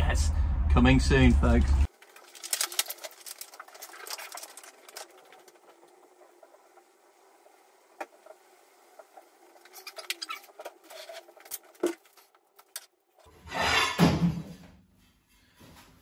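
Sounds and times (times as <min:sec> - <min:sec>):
wrapping rustling and tearing: 0:01.9 - 0:05.8.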